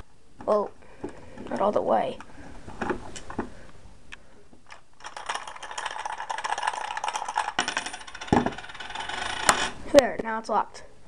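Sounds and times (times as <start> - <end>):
lego bricks rattling and clicking: 4.7 - 9.8.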